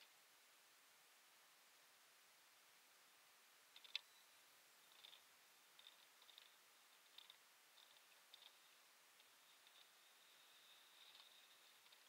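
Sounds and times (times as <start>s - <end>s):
faint hiss: 0.0s - 12.0s.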